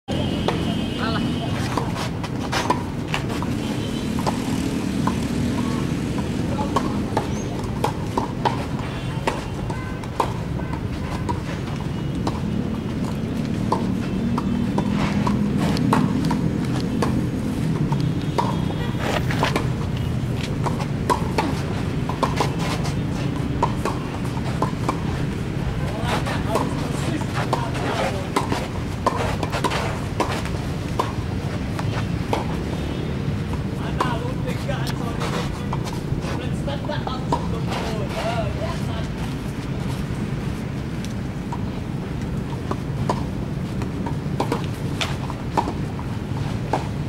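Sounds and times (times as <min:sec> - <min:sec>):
tennis balls struck and bouncing: 0:00.2 - 0:00.8, 0:01.5 - 0:47.0.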